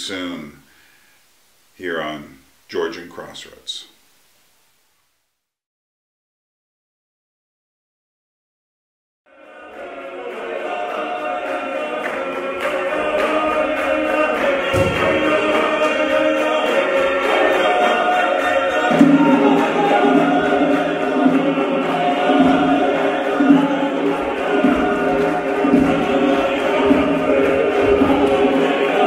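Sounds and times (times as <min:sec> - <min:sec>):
choir singing in harmony: 0:09.3 - 0:29.0.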